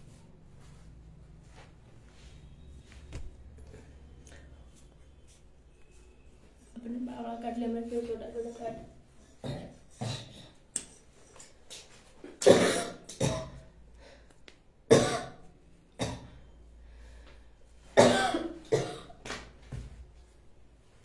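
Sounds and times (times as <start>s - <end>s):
person coughing: 9.4s - 10.6s, 12.3s - 13.7s, 14.9s - 15.4s, 18.0s - 19.2s.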